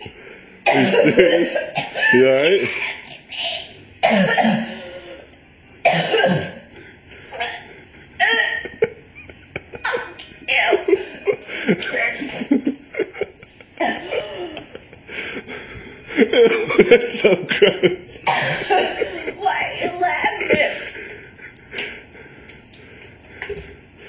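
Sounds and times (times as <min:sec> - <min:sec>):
woman coughing hard: 0:00.6 - 0:05.1, 0:05.8 - 0:06.7, 0:07.4 - 0:09.0, 0:09.8 - 0:11.1, 0:13.8 - 0:14.8, 0:18.2 - 0:20.9.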